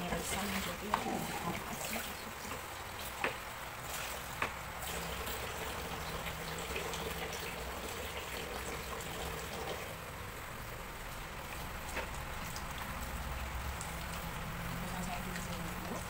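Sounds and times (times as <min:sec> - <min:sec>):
hands washing in water: 0:00.0 - 0:09.9
kitchen tap running: 0:00.0 - 0:16.0.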